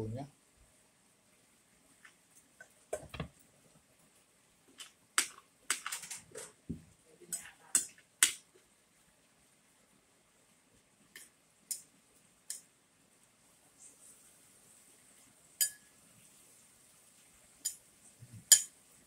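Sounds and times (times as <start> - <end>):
cutlery clinking on a plate: 18.4 - 18.8.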